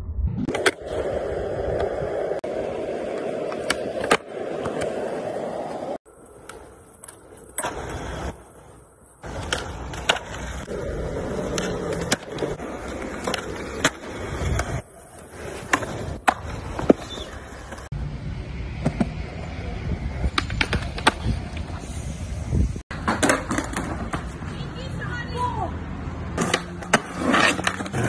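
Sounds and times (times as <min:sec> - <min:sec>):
skateboard wheels rolling on concrete: 0:00.4 - 0:28.0
skateboard tail popping and landing: 0:09.2 - 0:17.9, 0:22.9 - 0:24.3.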